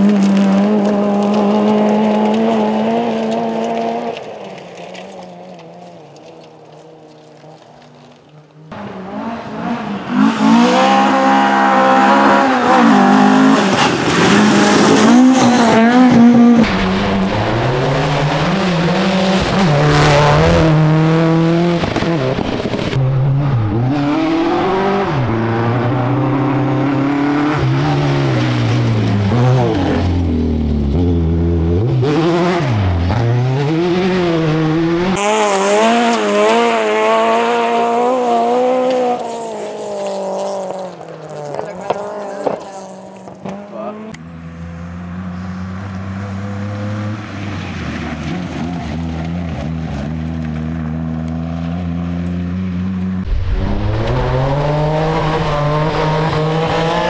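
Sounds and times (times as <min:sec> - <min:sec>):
tyres crunching on gravel: 0:00.0 - 0:08.7
rally car engines revving: 0:00.0 - 0:57.0.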